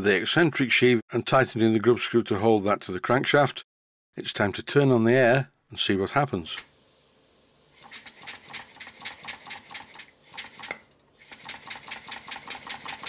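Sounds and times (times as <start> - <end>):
model steam engine exhaust puffs: 7.7 - 13.0.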